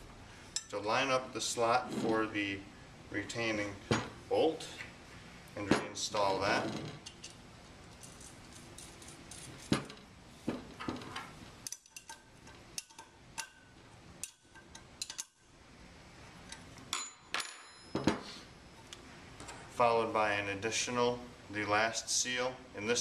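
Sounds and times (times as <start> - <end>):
metal parts clinking: 5.8 - 10.0, 10.8 - 13.5, 14.2 - 15.4
metallic ring: 16.9 - 18.2.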